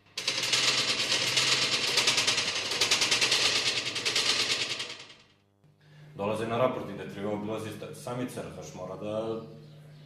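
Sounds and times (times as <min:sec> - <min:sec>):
fast rattle of sharp clicks: 0:00.1 - 0:05.2.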